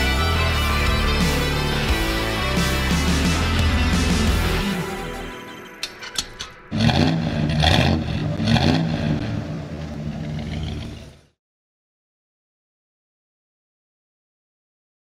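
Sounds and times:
engine revving: 6.7s - 11.4s.

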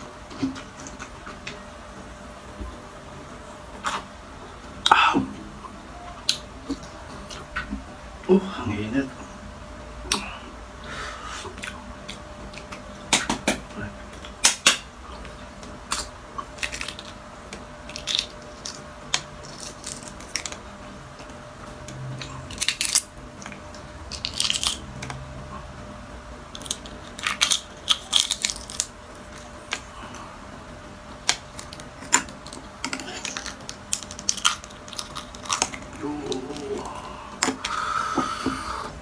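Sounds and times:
eggshell cracking by fingers: 15.9s - 20.6s, 21.2s - 25.2s, 26.5s - 29.9s, 31.2s - 38.4s.

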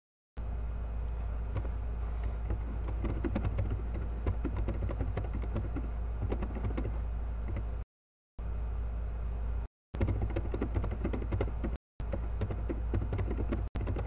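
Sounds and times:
steady low hum: 0.4s - 7.8s, 8.4s - 14.0s.

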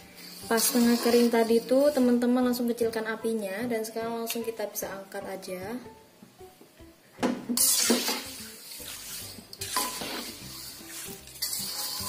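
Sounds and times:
metal skimmer scraping wok: 0.0s - 2.3s, 7.6s - 12.0s
oil frying hiss: 0.0s - 2.3s, 7.6s - 12.0s.

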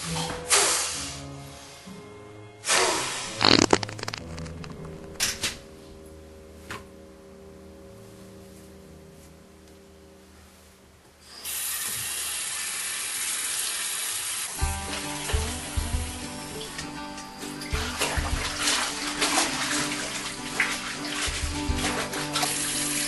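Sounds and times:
music with deep drum hits: 14.6s - 22.9s
steady water-like rushing: 14.6s - 23.0s.

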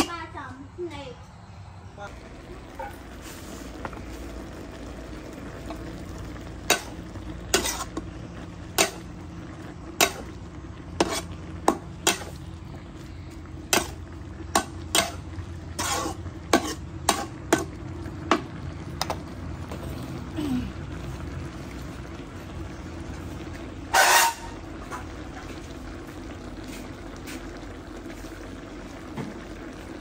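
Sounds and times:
food sizzling in a frying pan: 2.1s - 30.0s
metal ladle scraping a pan: 6.6s - 12.5s, 13.7s - 17.8s, 23.9s - 25.1s.

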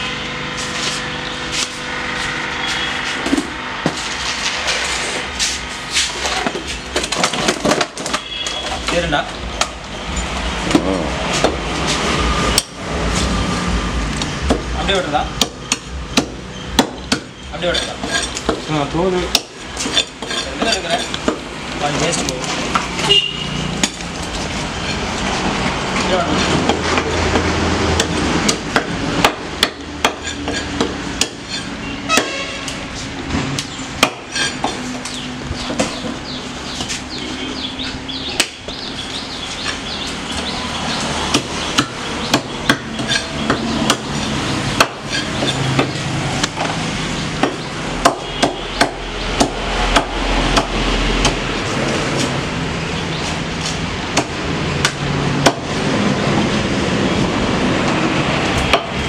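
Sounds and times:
cleaver chopping on wooden block: 26.7s - 32.4s, 34.0s - 34.8s, 41.3s - 44.1s, 44.8s - 46.7s, 47.4s - 51.4s, 54.1s - 55.7s.

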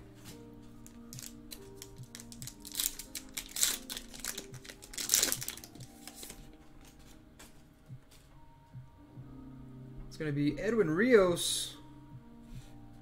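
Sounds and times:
soft background music: 0.0s - 13.0s
foil wrapper crinkling: 0.8s - 7.0s.

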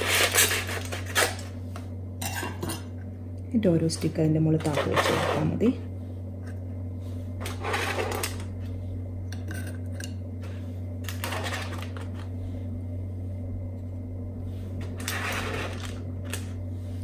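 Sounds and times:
aluminium foil crinkling: 0.0s - 1.6s, 11.1s - 12.3s
steady low hum: 0.0s - 17.0s.

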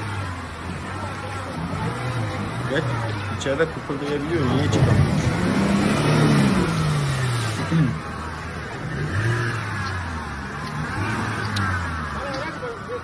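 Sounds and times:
truck engine revving under load: 0.0s - 13.0s.

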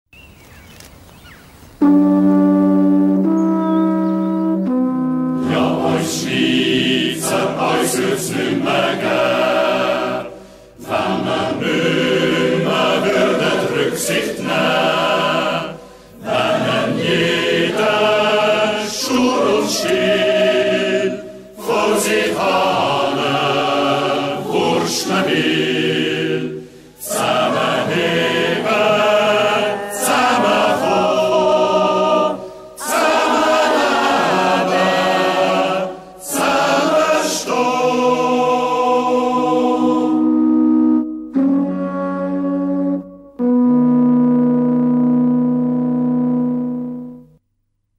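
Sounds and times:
mixed choir singing: 5.4s - 40.4s.

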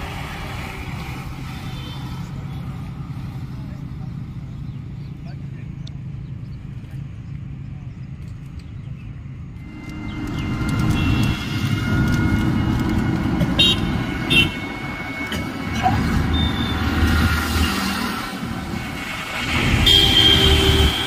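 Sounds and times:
road traffic rumble: 0.0s - 21.0s
vehicle running noise from inside: 0.0s - 21.0s
car horn toots: 10.8s - 12.8s, 13.4s - 15.4s, 19.6s - 21.0s.

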